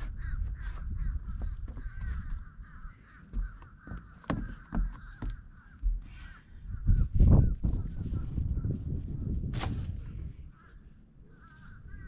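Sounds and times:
chorus of bird calls: 0.0s - 8.8s, 10.1s - 12.0s.

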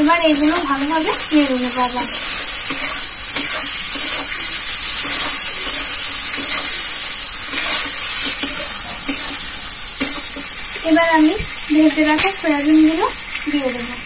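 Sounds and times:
food sizzling in a wok: 0.0s - 14.0s
spatula scraping a pan: 0.4s - 10.6s.

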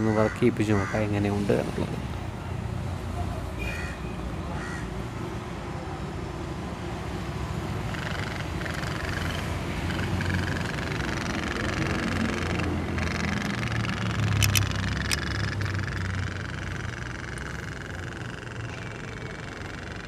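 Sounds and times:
toy steam engine putt-putting: 7.9s - 20.0s.

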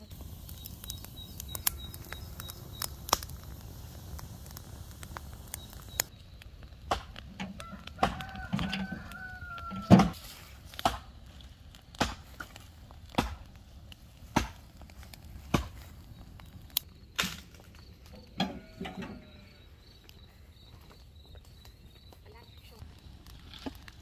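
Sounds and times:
firewood being chopped: 0.1s - 19.2s.

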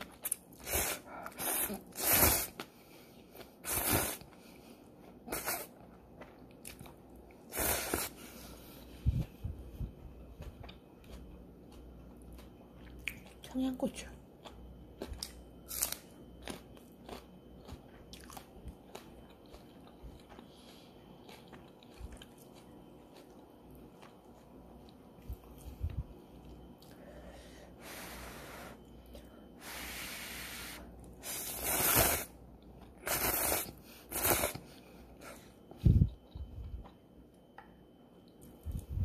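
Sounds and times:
crunching and chewing: 5.7s - 7.5s, 10.2s - 13.5s, 14.3s - 27.0s.

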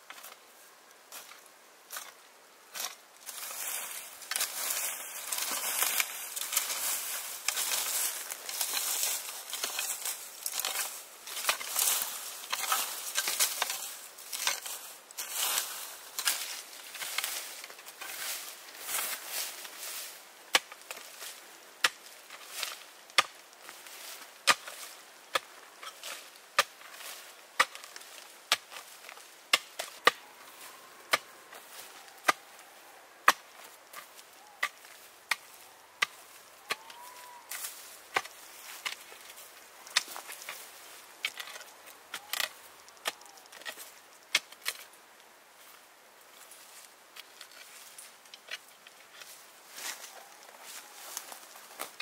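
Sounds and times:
rustling: 1.1s - 52.0s
hand tool chopping into ground: 2.8s - 15.4s, 21.8s - 23.4s, 24.5s - 30.2s, 33.2s - 39.3s.

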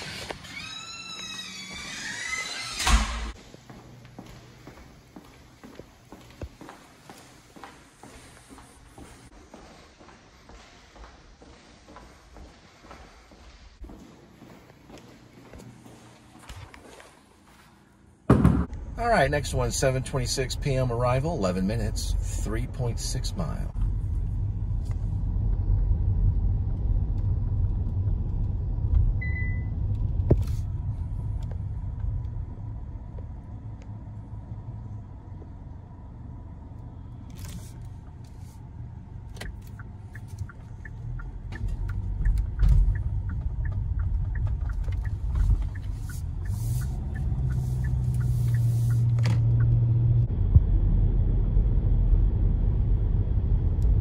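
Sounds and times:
car road and engine rumble: 0.0s - 16.6s, 18.1s - 54.0s.

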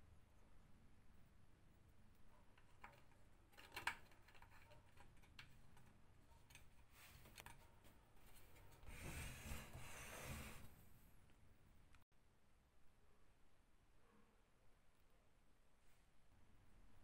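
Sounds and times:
small clicks and taps: 2.4s - 7.6s
rubbing scraping: 8.2s - 11.0s.

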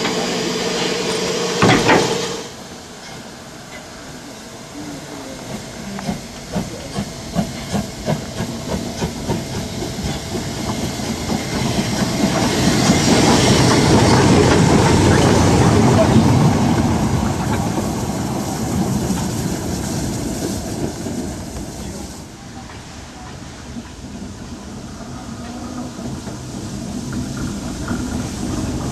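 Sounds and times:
hissing steam: 0.0s - 28.9s
train wheels rumbling: 0.0s - 28.9s
steam locomotive exhaust chuffs: 5.0s - 28.9s.

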